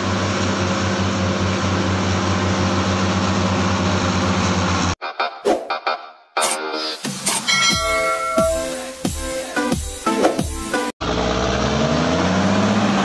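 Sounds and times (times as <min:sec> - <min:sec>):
bulldozer diesel engine running: 0:00.0 - 0:05.0
short electronic music: 0:05.0 - 0:10.9.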